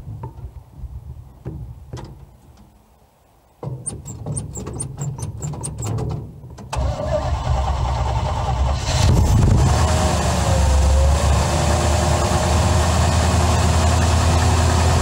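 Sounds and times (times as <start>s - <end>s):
truck engine rumbling: 1.5s - 15.0s.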